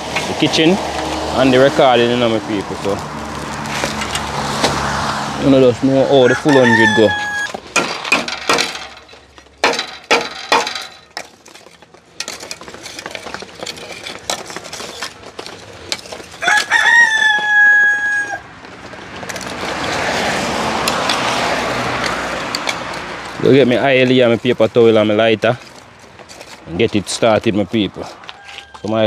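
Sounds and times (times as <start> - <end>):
rooster crowing: 6.1 - 7.6, 16.4 - 18.5, 28.1 - 29.0
sharp knocks: 7.5 - 11.3.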